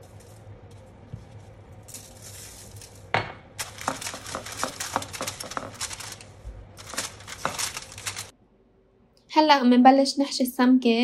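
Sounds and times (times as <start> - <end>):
aluminium foil crinkling: 0.0 - 8.3.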